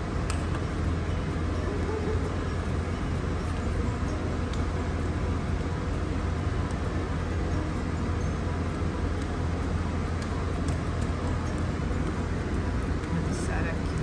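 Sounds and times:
low droning hum: 0.0s - 14.0s
noisy rush: 0.0s - 14.0s.

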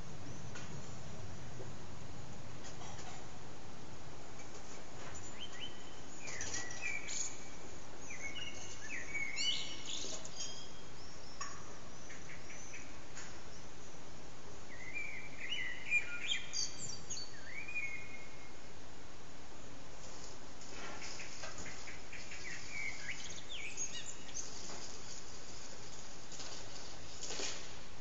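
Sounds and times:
background hiss: 0.0s - 28.0s
blackbird singing: 5.2s - 14.0s, 14.7s - 18.6s, 21.2s - 24.6s.

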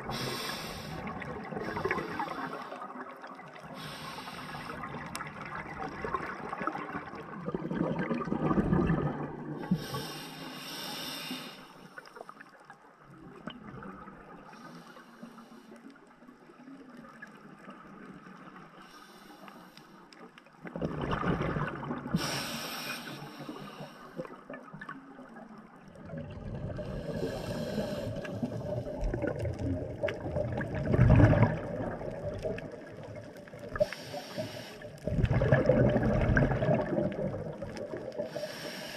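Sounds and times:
exhaled bubbles rumbling: 0.0s - 9.9s, 20.6s - 22.4s, 24.2s - 33.9s, 34.8s - 38.4s
regulator inhale hiss: 0.1s - 3.0s, 3.6s - 4.9s, 9.6s - 12.3s, 14.5s - 15.9s, 18.8s - 20.2s, 22.2s - 24.4s, 26.8s - 28.9s, 33.7s - 35.1s, 38.2s - 38.9s.

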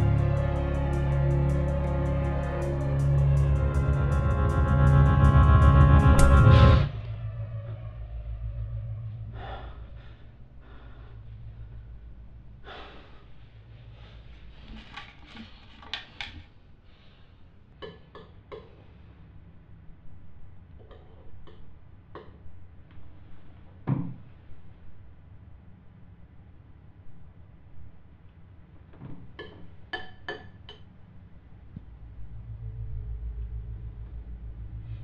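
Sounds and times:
low hum: 0.0s - 15.6s, 31.3s - 35.0s.

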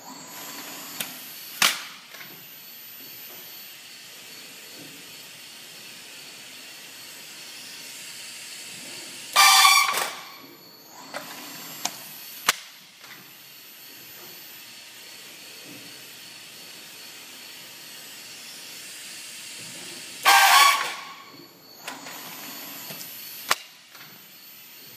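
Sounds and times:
steady machine noise: 0.0s - 24.9s
pneumatic air hisses: 8.9s - 10.4s, 19.5s - 23.6s.

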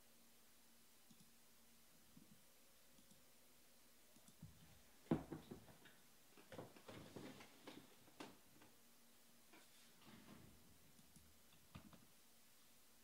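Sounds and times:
faint clicks and taps: 3.0s - 3.2s, 4.1s - 8.8s, 10.9s - 12.1s.

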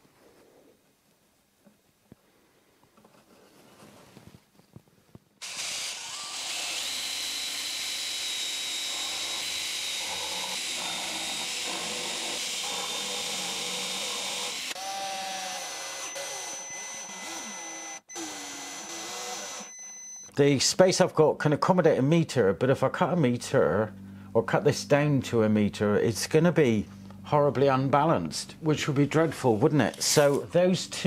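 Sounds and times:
power tool high whine: 5.4s - 20.3s.

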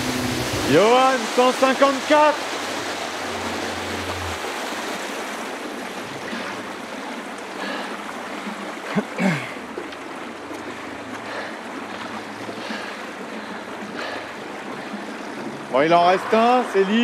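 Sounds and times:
paddle splashes: 0.0s - 17.0s
water rushing around kayaks: 0.0s - 17.0s.

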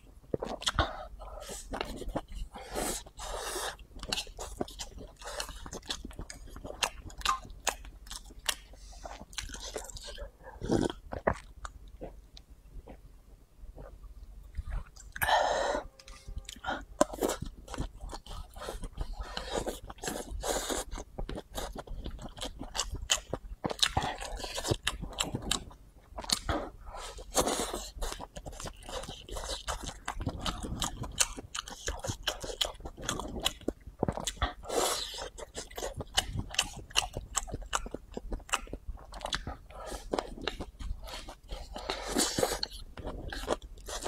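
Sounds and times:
close chewing of noodles: 0.0s - 13.0s, 16.4s - 44.0s.

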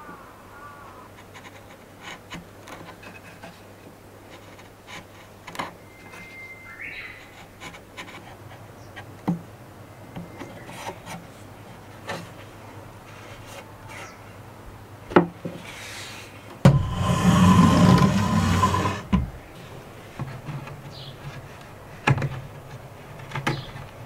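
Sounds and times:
blade scraping wood: 16.7s - 22.1s.

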